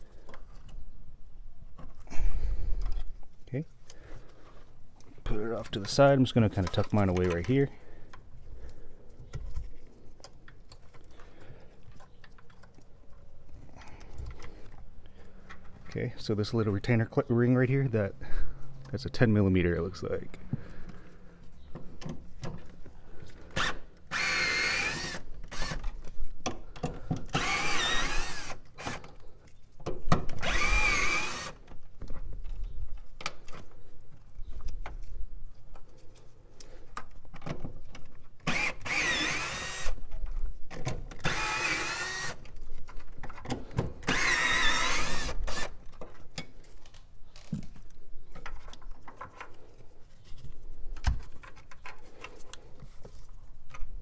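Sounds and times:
cordless drill whining: 23.5s - 25.8s, 27.3s - 29.1s, 30.4s - 31.6s, 38.4s - 40.0s, 41.2s - 42.5s, 44.0s - 45.8s.

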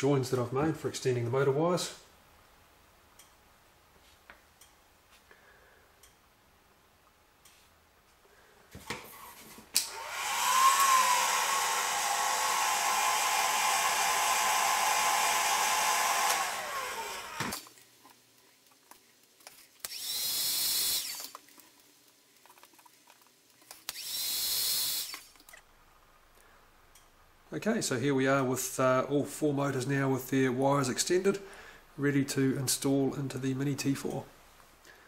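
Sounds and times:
heat gun fan whine: 9.7s - 17.7s, 19.8s - 21.4s, 23.9s - 25.5s.

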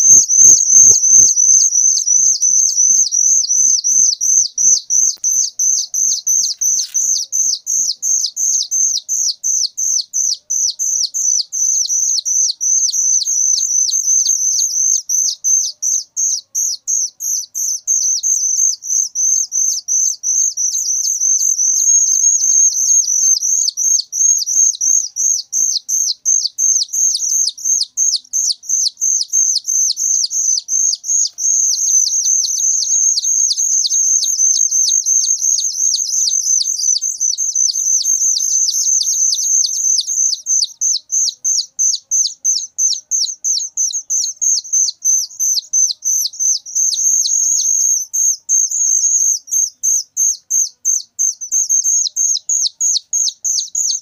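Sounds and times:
nestlings begging calls: 0.0s - 54.0s.

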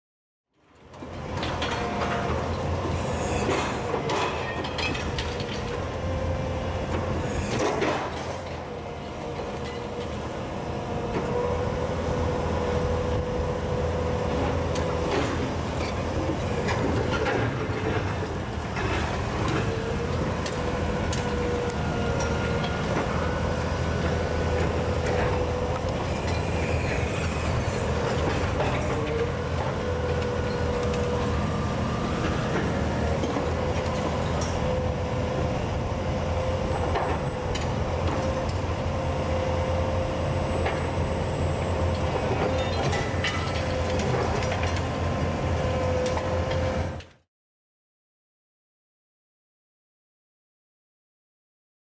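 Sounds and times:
excavator diesel engine running: 0.8s - 47.2s
concrete and steel cracking: 42.4s - 44.9s.

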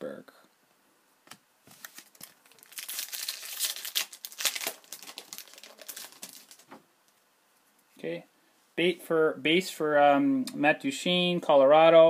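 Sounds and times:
foil wrapper crinkling and tearing: 1.7s - 6.7s.

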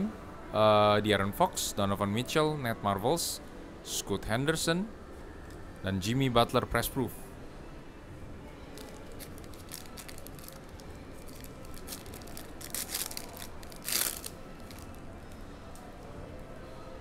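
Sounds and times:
wrapper crinkling and tearing: 8.8s - 15.4s.

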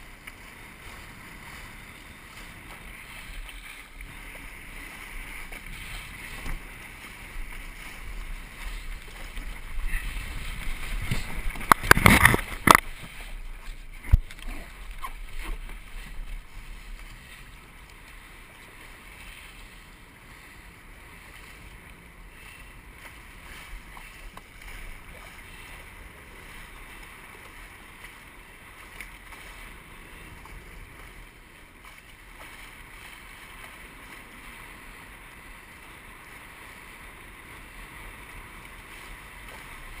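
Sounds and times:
water rushing past hull: 0.0s - 40.0s
wind buffeting microphone: 0.0s - 40.0s
knocks and splashes: 2.3s - 17.2s.

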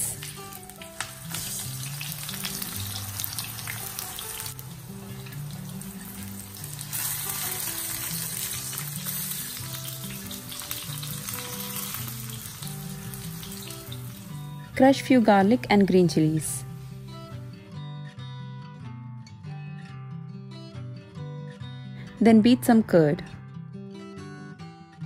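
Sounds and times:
eggplant sizzling in oil: 0.0s - 17.4s.

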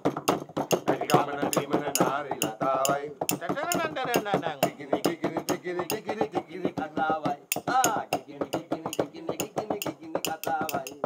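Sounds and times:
people singing: 0.7s - 11.0s.

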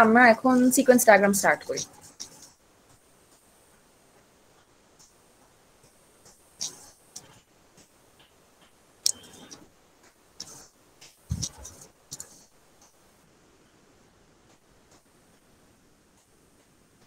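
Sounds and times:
computer clicks: 9.0s - 9.6s.

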